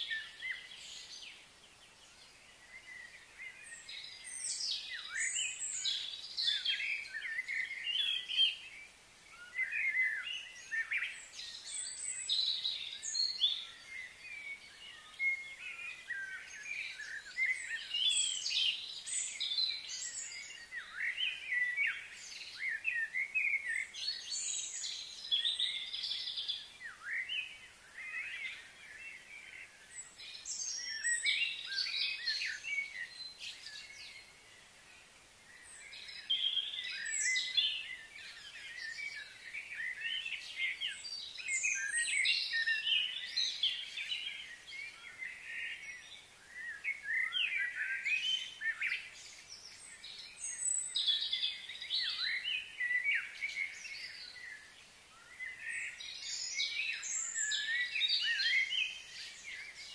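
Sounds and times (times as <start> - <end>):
birds chirping and calling: 35.4 - 59.9.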